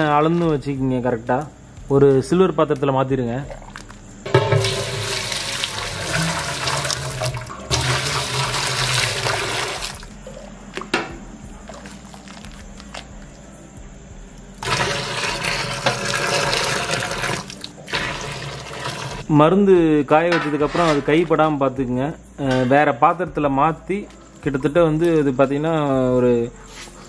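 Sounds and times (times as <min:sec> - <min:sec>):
liquid pouring into steel vessel: 0:03.5 - 0:10.0, 0:14.6 - 0:19.3.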